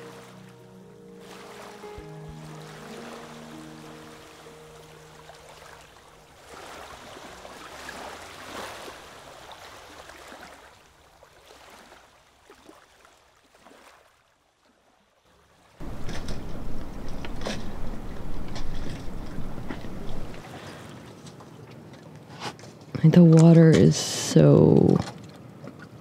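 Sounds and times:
low held music notes: 0.0s - 6.5s, 15.8s - 20.4s
soft wash of water: 0.0s - 22.9s.

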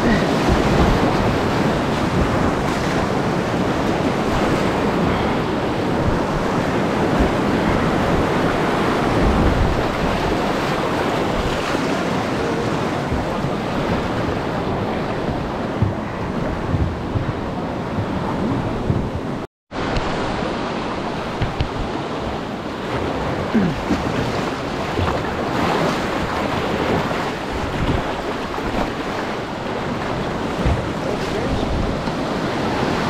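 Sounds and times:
whitewater rapids rushing: 0.0s - 16.7s.

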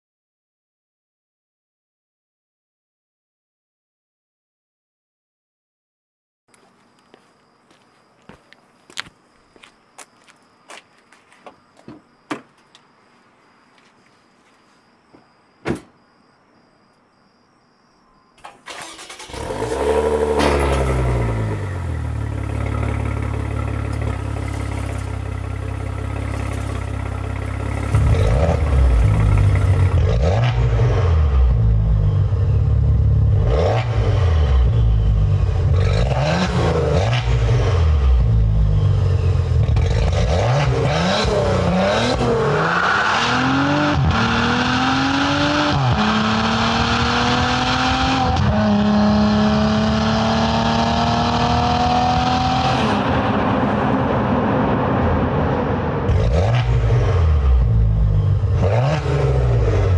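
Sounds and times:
car engine idling and revving: 18.7s - 59.9s.

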